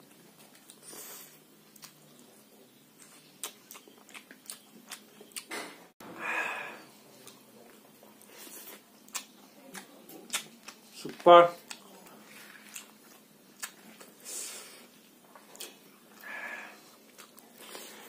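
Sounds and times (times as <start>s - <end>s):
man chewing: 0.0s - 5.7s, 6.9s - 18.0s
breathy sound: 6.0s - 6.9s
wet mouth clicks and smacks: 9.1s - 10.8s.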